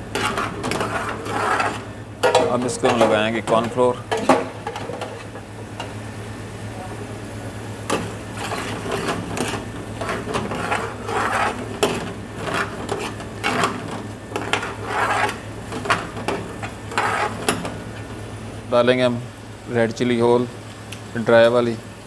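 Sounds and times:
metal ladle scraping frying pan: 0.0s - 5.4s, 7.9s - 17.8s
steady low hum: 0.0s - 22.0s.

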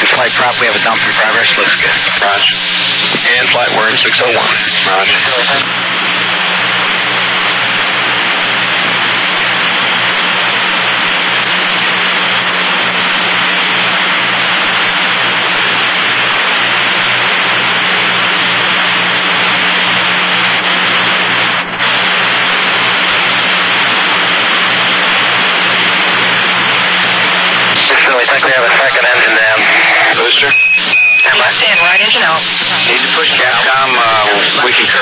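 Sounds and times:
low buzzing hum: 0.0s - 27.9s
radio channel hiss: 0.0s - 35.0s.

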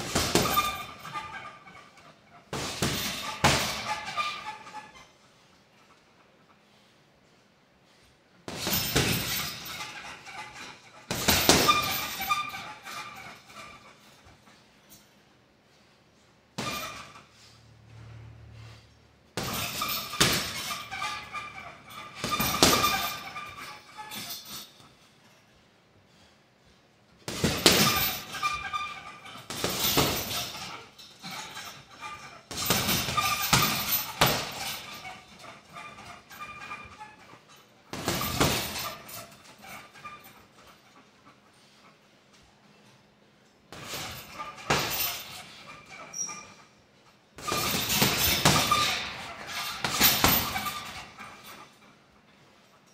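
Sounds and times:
punches hitting heavy bag: 0.0s - 0.8s, 27.3s - 28.1s
metal chains rattling: 0.0s - 5.1s, 8.5s - 15.2s, 19.4s - 25.5s, 27.3s - 41.0s, 43.8s - 46.7s, 47.4s - 52.1s
chains rattling: 19.4s - 25.1s, 27.4s - 40.7s.

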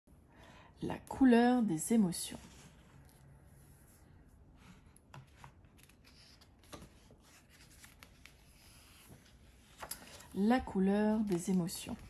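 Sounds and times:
book pages rustling and turning: 4.6s - 12.0s.

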